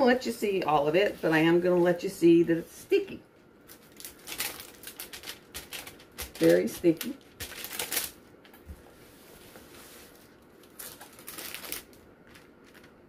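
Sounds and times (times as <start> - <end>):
canvas film crinkling: 3.5 - 13.0.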